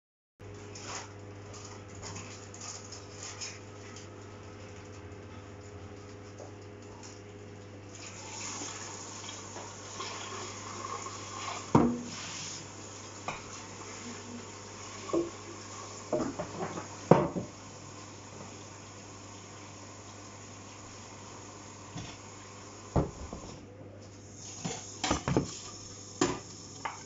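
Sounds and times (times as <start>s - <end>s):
tap water running: 6.4s - 23.6s, 24.2s - 27.0s
metal pans clanking in sink: 24.6s - 25.6s.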